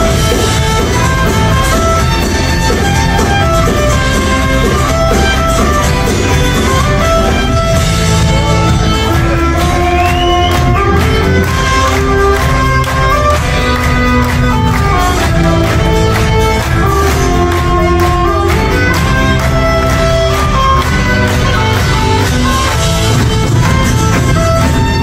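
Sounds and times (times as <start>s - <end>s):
drums: 0.0s - 25.0s
electric guitars: 0.0s - 25.0s
fiddle melody: 0.0s - 25.0s.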